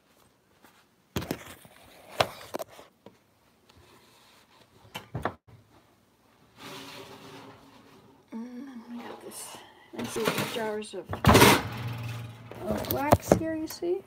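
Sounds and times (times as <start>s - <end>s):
scrape: 3.7s - 4.7s, 6.5s - 8.1s.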